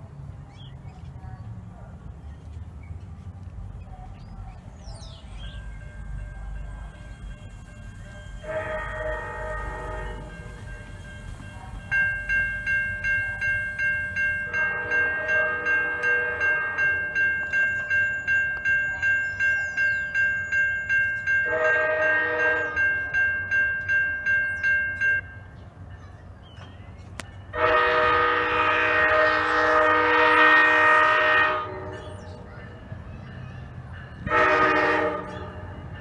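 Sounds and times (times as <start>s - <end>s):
crossing bell ringing rapidly: 4.8s - 26.2s, 29.6s - 36.0s
train horn blasts: 7.0s - 11.3s, 14.4s - 17.3s, 21.4s - 23.0s, 27.5s - 32.3s, 34.2s - 36.0s.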